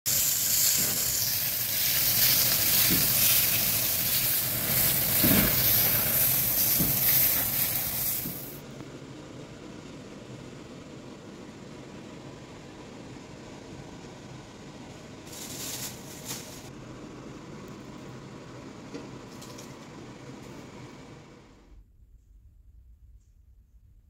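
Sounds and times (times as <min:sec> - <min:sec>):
steak sizzling on grill pan: 0:00.1 - 0:08.6
faint steady hiss: 0:00.1 - 0:19.3.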